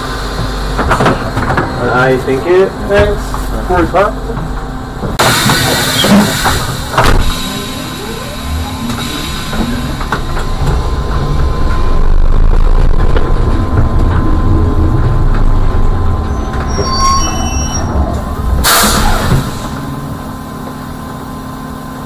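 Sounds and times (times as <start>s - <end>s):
trolleybus rumble and whine: 0.0s - 22.0s
high squeals: 14.2s - 20.0s.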